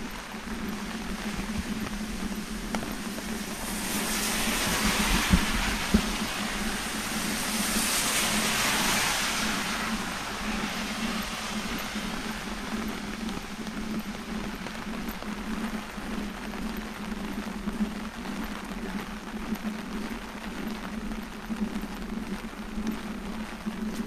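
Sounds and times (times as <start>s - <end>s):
car tyres hissing on wet road: 0.0s - 18.0s.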